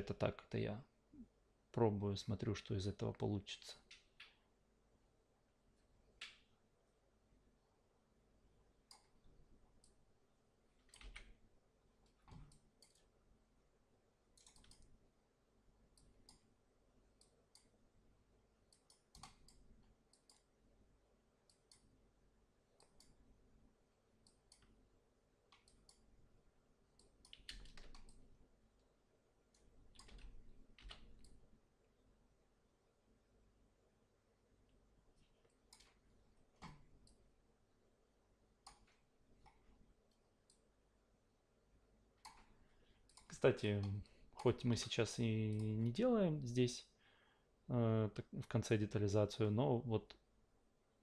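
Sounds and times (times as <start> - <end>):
computer mouse clicks: 8.9 - 9.2, 9.8 - 10.0, 12.0 - 13.1, 14.4 - 14.9, 15.9 - 16.5, 17.2 - 17.7, 18.7 - 20.5, 21.4 - 21.9, 22.8 - 23.2, 24.2 - 24.8, 25.5 - 26.1, 27.0 - 28.2, 29.5 - 31.4, 35.4 - 36.0, 36.6 - 37.2, 38.6 - 40.7, 42.2 - 44.6.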